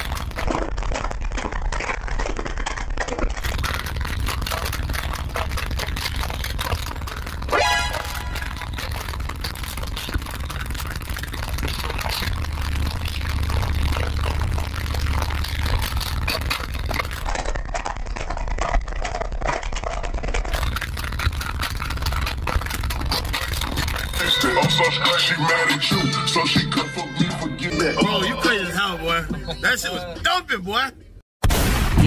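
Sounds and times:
subwoofers playing heavy bass: 0:00.0 - 0:00.6, 0:03.4 - 0:17.3, 0:20.5 - 0:30.3
crackling and rattling: 0:00.0 - 0:25.1.

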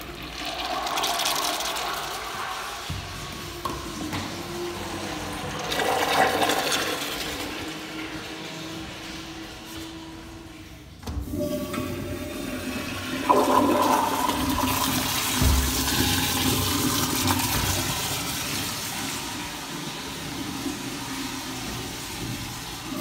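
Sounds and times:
toilet flushing: 0:00.0 - 0:23.0.

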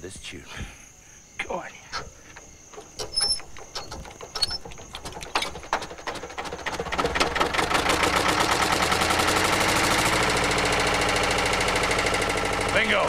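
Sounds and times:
diesel engine starting: 0:04.9 - 0:13.0.

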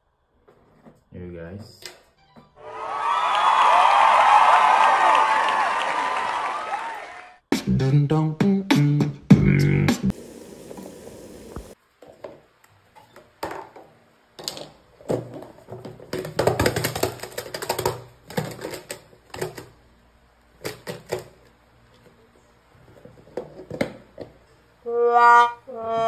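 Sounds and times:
plastic container rattling: 0:15.1 - 0:19.7.

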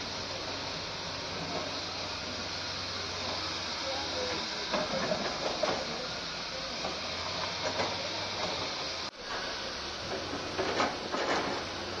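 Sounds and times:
heavy machinery running: 0:00.0 - 0:12.0.

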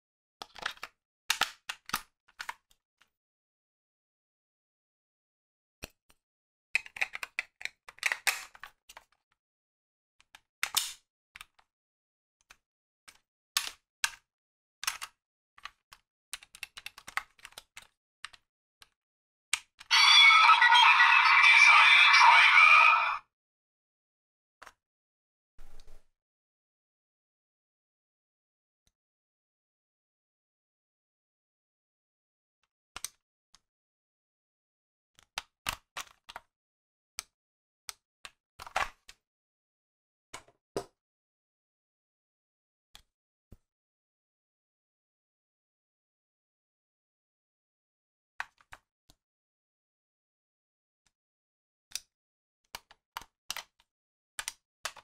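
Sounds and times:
loud music: 0:19.9 - 0:23.2.

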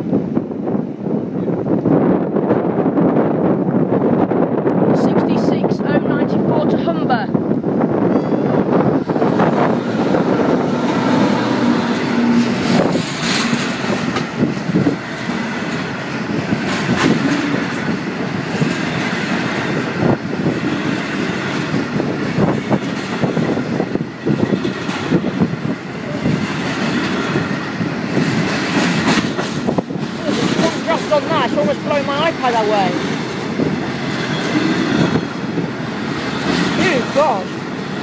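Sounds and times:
diesel locomotive passing: 0:00.0 - 0:38.0
train wheels clattering over rails: 0:08.3 - 0:38.0.

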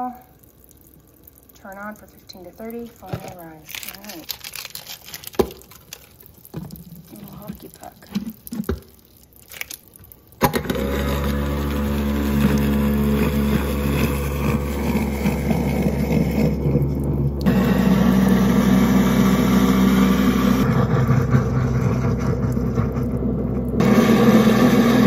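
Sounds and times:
water running into drain: 0:00.0 - 0:25.0
garbage disposal motor humming: 0:10.4 - 0:25.0.

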